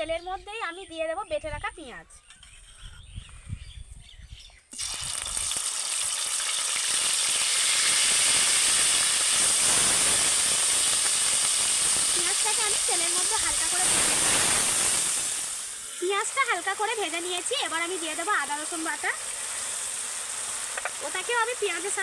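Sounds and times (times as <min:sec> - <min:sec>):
paste sizzling in hot oil: 0:04.7 - 0:22.0.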